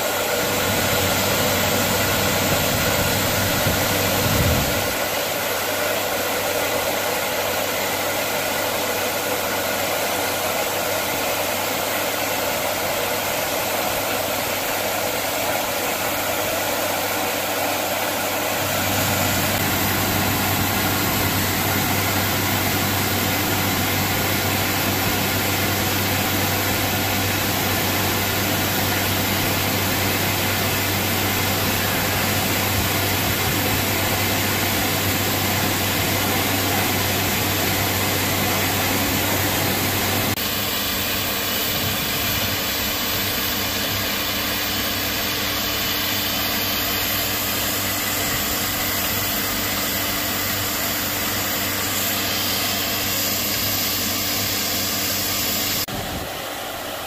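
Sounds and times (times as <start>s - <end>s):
steam hissing: 0.0s - 57.0s
deep steady rumble: 0.5s - 5.0s.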